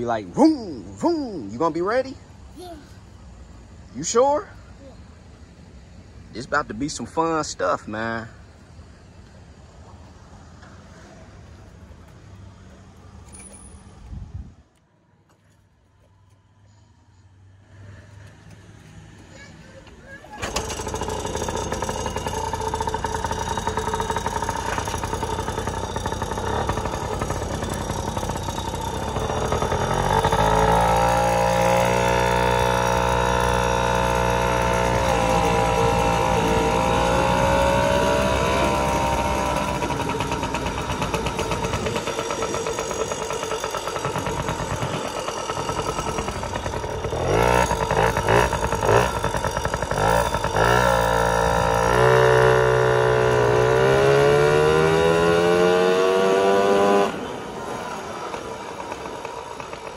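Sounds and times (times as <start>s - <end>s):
two-stroke motorbike engine revving: 20.4s - 59.9s.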